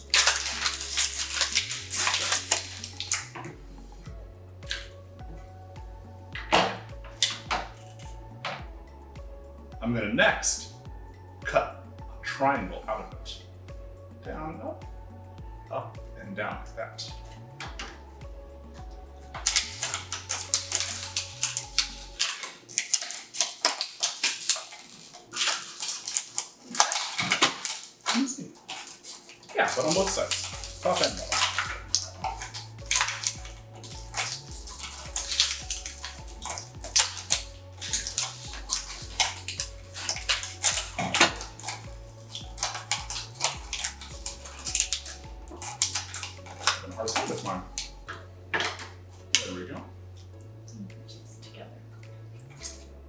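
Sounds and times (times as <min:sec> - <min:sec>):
plastic crinkling: 0:00.0 - 0:03.6, 0:19.4 - 0:48.0
quiet background music: 0:00.0 - 0:53.0.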